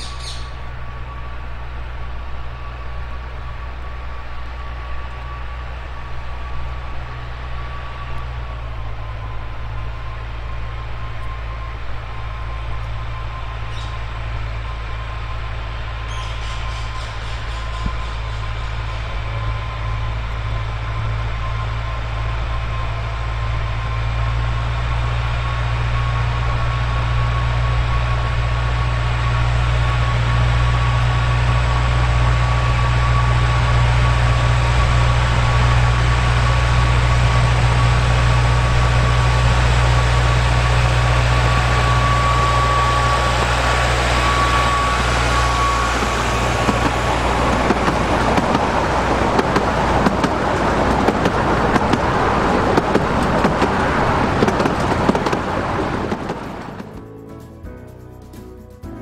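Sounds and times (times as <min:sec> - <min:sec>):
wheels clicking on rails: 0:00.0 - 0:58.6
diesel locomotive engine whining: 0:00.0 - 0:59.0
coaches rattling past: 0:36.4 - 0:58.8.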